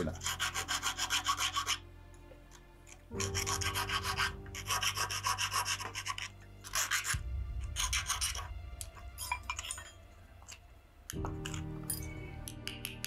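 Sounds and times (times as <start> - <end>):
hand file rasping on metal: 0.0 - 1.9, 2.9 - 8.5.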